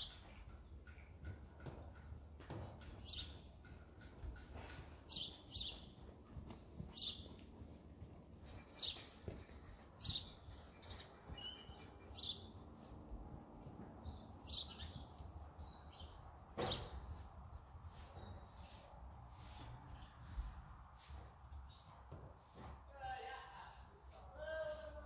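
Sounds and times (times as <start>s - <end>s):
small birds chirping: 0.0s - 13.0s, 14.0s - 18.8s, 21.5s - 22.1s.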